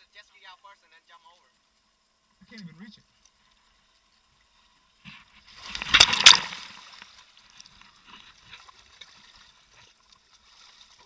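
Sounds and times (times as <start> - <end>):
water splashing against hull: 5.1 - 11.0
sharp water slaps: 5.7 - 7.0.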